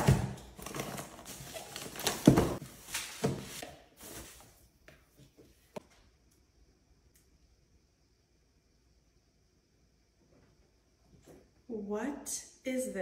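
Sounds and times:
cardboard boxes and paper rustling: 0.0 - 4.6.

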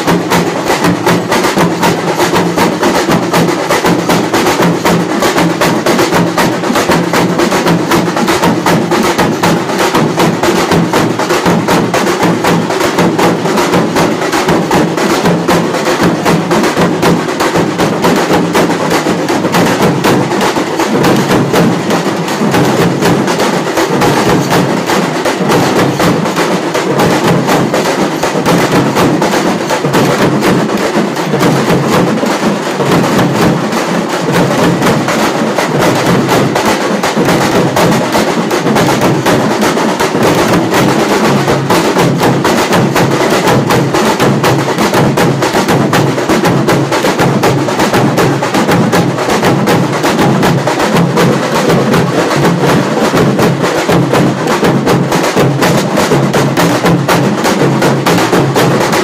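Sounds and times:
fast frame drumming: 0.0 - 59.0.

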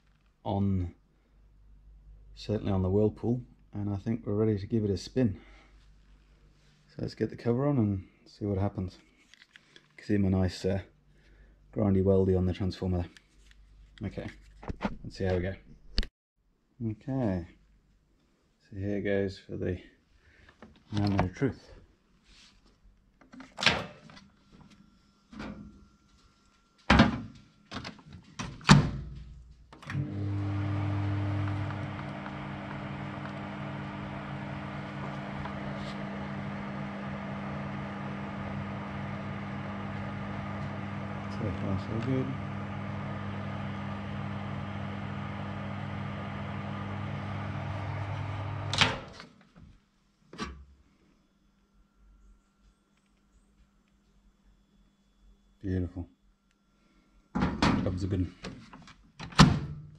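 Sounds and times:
microwave running hum: 29.8 - 49.2
microwave door opening and shutting: 46.4 - 49.2.

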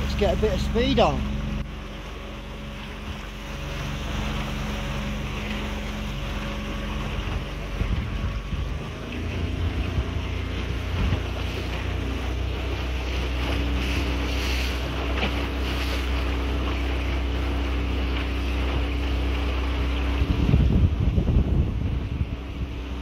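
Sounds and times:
outboard motor running: 0.0 - 23.0
wind buffeting microphone: 2.7 - 23.0
spray hissing off hull: 12.6 - 17.0.

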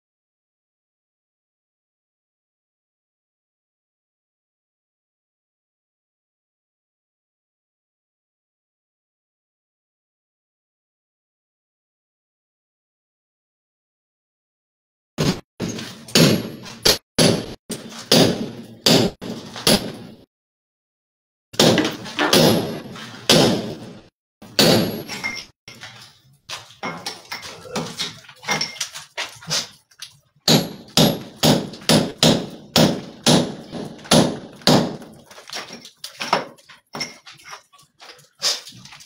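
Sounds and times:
hammer striking chisel into wall: 15.2 - 20.3, 21.6 - 25.5, 30.5 - 37.2.

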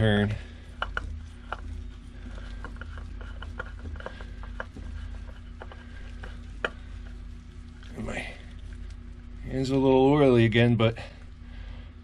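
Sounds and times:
steady low hum: 0.0 - 12.0
oil filter clicking as turned: 0.8 - 1.7, 2.3 - 7.0.

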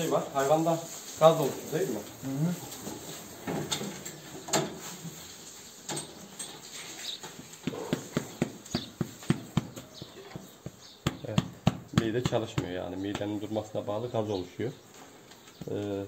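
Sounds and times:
hand tapping cow's flank: 7.1 - 13.4.

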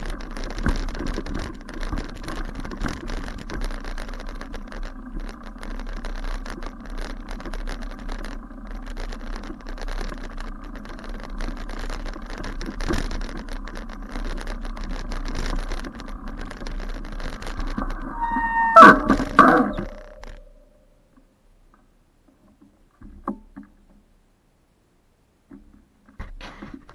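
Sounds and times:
bike knocks and rattles: 0.0 - 20.7, 25.4 - 26.9
tyre and wind rumble: 0.0 - 20.7.

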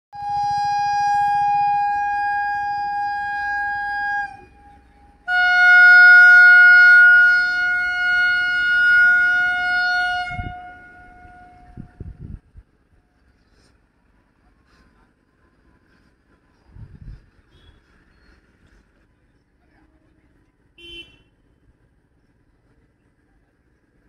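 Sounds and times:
locomotive horn blasts: 0.2 - 12.2, 20.8 - 21.3.

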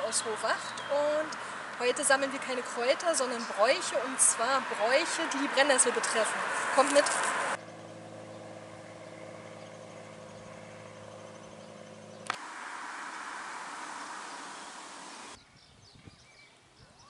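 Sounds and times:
low motor hum: 7.3 - 15.4
steady rushing noise: 8.7 - 15.4.

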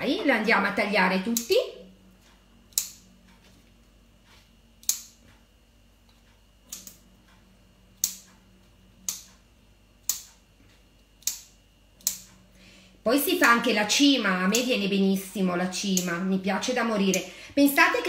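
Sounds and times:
scissors snipping twine: 1.3 - 1.5, 2.7 - 3.0, 4.8 - 5.2, 6.7 - 7.0, 8.0 - 8.4, 11.2 - 12.4, 14.5 - 14.8, 15.8 - 16.2.

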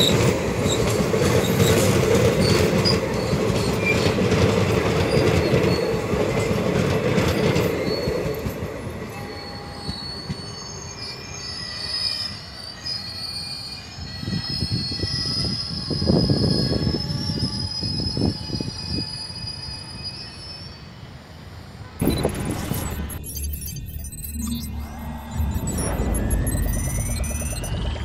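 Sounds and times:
train wheels rumbling on rail: 0.0 - 20.9
high wheel squeals: 0.0 - 28.0.

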